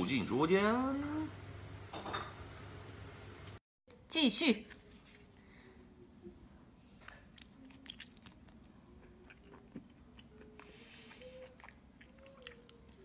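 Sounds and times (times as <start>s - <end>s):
biting and chewing: 7.4s - 13.0s.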